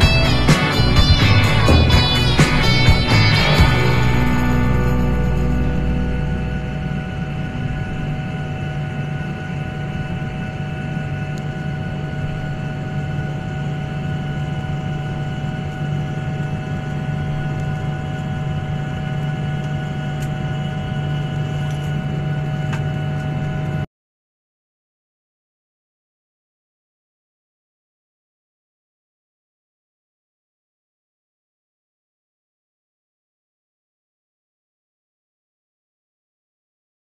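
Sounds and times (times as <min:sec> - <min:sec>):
jet engine cabin hum: 0:00.0 - 0:23.8.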